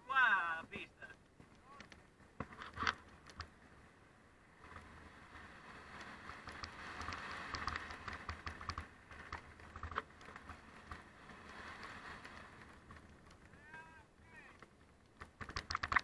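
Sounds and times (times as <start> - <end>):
bike tyres crunching on gravel: 4.6 - 16.0
stones clicking and rattling: 14.6 - 16.0.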